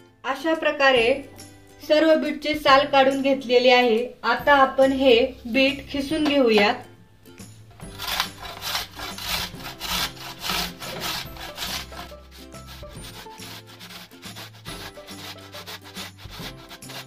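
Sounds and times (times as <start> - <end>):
soft background music: 0.0 - 17.0
beetroot grating on metal grater: 7.8 - 17.0.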